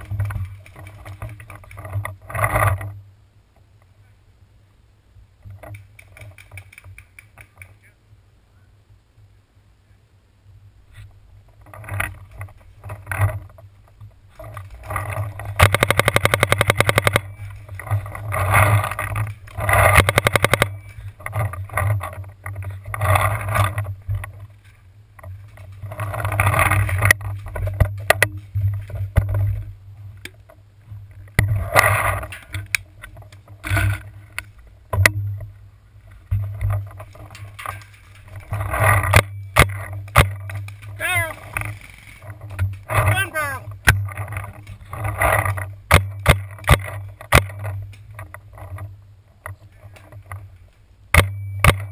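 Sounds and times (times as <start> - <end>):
scraping against bark and brush: 0.0 - 3.0, 10.9 - 50.7
sharp clicks: 5.6 - 7.8.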